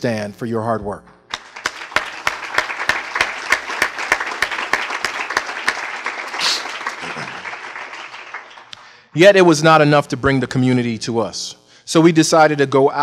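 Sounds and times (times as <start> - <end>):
audience applauding: 1.3 - 9.0.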